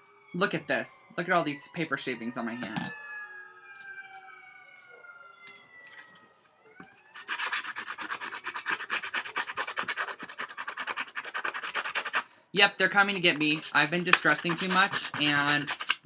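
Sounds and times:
siren wailing: 0:00.0 - 0:07.4, 0:13.0 - 0:15.7
tool scraping paper edge: 0:07.2 - 0:12.3, 0:13.0 - 0:16.0.

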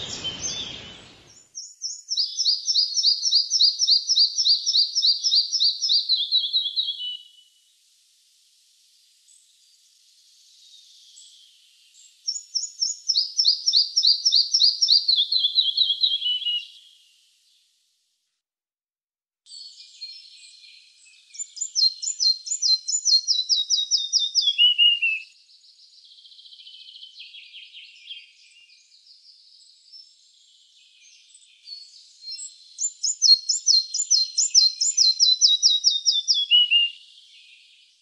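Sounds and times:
bird singing: 0:00.0 - 0:07.5, 0:10.6 - 0:17.0, 0:19.6 - 0:38.0.

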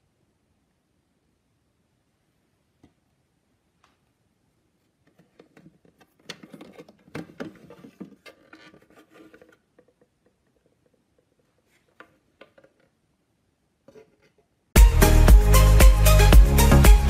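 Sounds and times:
plastic parts clicking and rattling: 0:05.0 - 0:13.0.

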